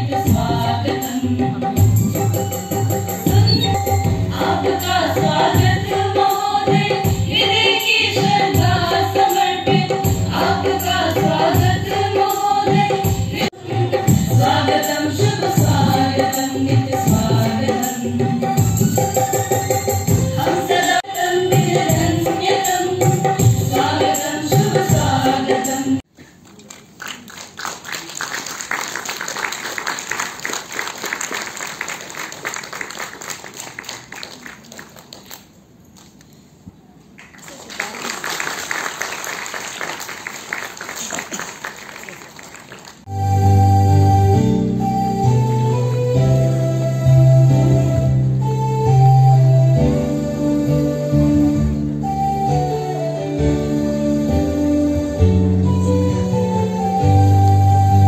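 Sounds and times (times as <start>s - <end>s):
women singing into microphones: 0.0s - 2.3s, 3.2s - 18.9s, 20.3s - 26.0s
audience applauding: 26.4s - 36.2s, 37.2s - 43.1s.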